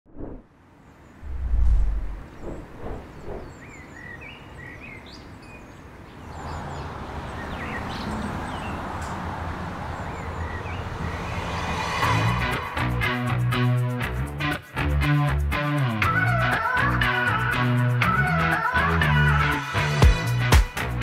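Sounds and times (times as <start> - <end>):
outdoor background noise: 0.1 - 13.0
birds chirping: 0.7 - 12.7.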